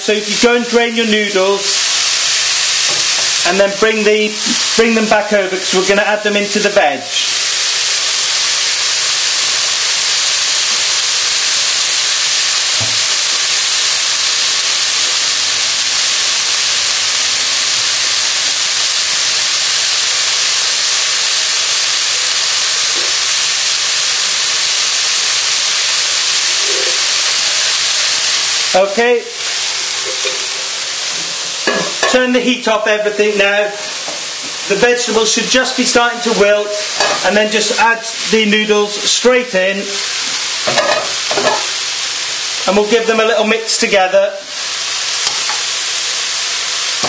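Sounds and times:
vegetables sizzling in frying pan: 0.0 - 47.0.

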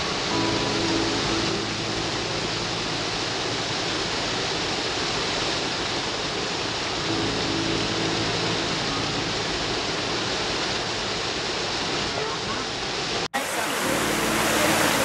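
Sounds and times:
stream water rushing over cascade: 0.0 - 15.0.

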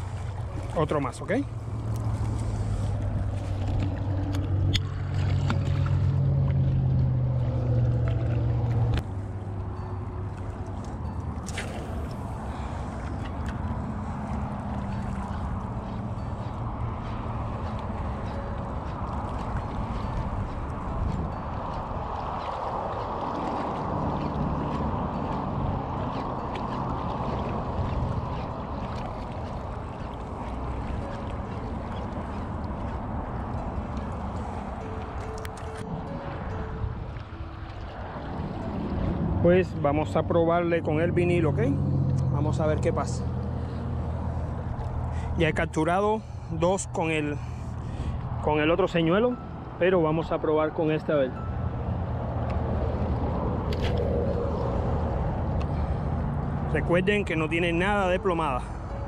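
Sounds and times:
low motor drone: 0.0 - 49.9, 51.3 - 59.0
wind buffeting microphone: 12.0 - 45.4.

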